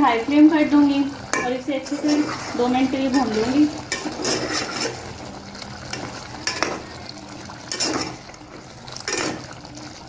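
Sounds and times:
food frying sizzle: 0.0s - 10.0s
spoon scraping metal pot: 1.3s - 5.2s, 5.9s - 6.9s, 7.6s - 8.3s, 9.0s - 9.6s.

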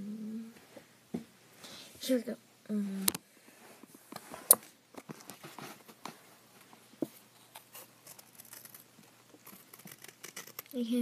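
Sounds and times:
paper rustling: 4.2s - 10.8s.

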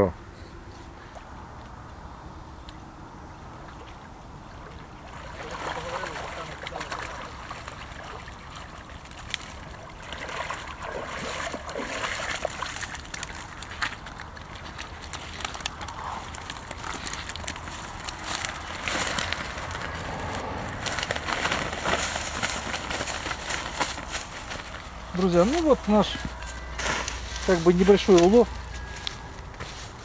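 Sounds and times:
splashing from wading: 3.6s - 15.6s
water running off a net: 5.0s - 15.7s
net clicks and rustles: 11.8s - 30.0s.

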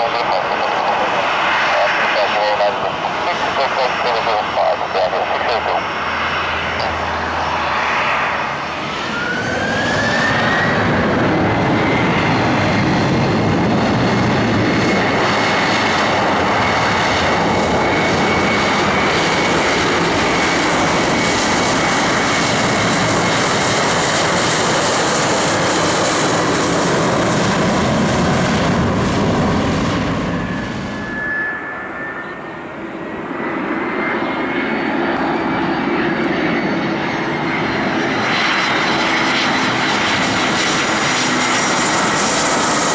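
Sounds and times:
approaching jet whine: 0.0s - 42.9s
jet engines spooling up: 0.0s - 42.9s.

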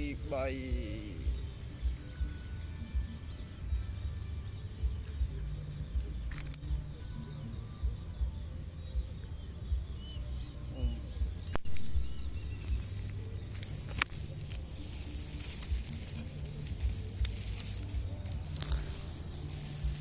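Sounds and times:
bird chirps: 0.0s - 20.0s.

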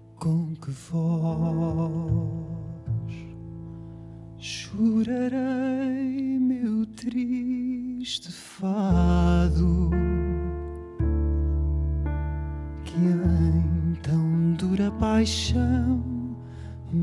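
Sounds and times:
singer breathing: 3.5s - 4.4s, 16.4s - 16.9s
man singing with vibrato: 4.4s - 10.5s, 12.9s - 17.0s.

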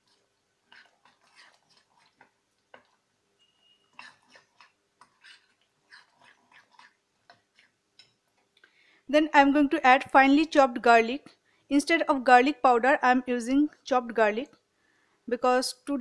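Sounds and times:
spoon stirring batter in glass bowl: 0.0s - 8.6s.

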